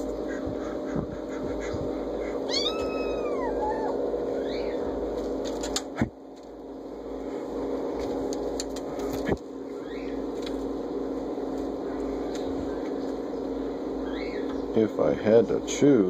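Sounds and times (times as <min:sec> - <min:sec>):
low hum: 0:00.0 - 0:16.0
kitten mewing: 0:01.6 - 0:04.7.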